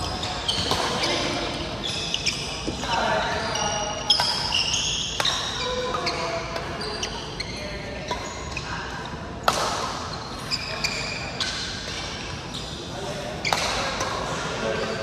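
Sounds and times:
shoes squeaking on court: 0:00.0 - 0:08.8, 0:09.5 - 0:15.0
racket striking shuttlecock: 0:09.4 - 0:10.1, 0:13.5 - 0:14.2.

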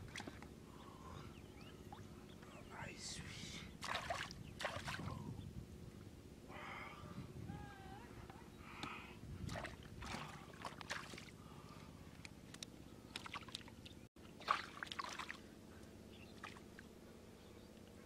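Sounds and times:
hands splashing in muddy water: 0:03.8 - 0:05.1, 0:09.5 - 0:11.3, 0:12.2 - 0:13.8, 0:14.4 - 0:15.4.

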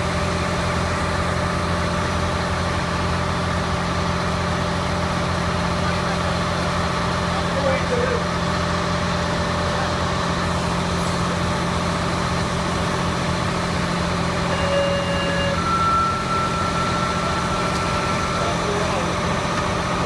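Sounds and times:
fire engine droning: 0:00.0 - 0:20.0
steady high tones: 0:14.1 - 0:20.0.

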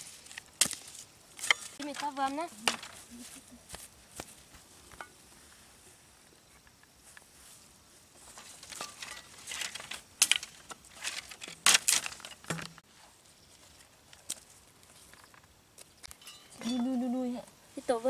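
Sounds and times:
machete scraping soil and twigs: 0:00.0 - 0:03.3, 0:08.2 - 0:12.8.

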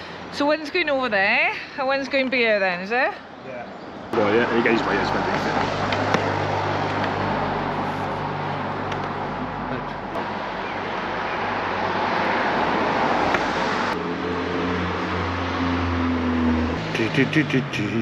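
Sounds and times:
road traffic noise: 0:00.0 - 0:18.0
vehicle engine rumble: 0:04.1 - 0:18.0.

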